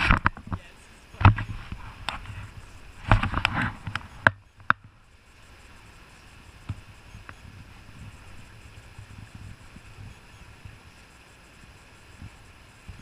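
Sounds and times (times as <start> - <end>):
hiss of water and wind: 0.0 - 13.0.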